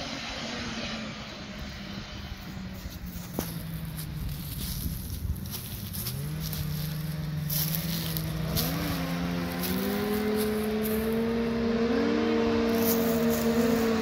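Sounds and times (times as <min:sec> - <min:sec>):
kart engine running: 0:00.0 - 0:14.0
wind buffeting microphone: 0:01.5 - 0:14.0.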